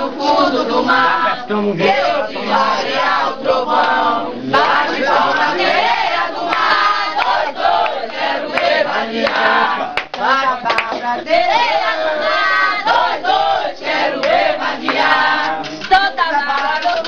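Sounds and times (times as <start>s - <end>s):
group singing in chorus: 0.0s - 17.0s.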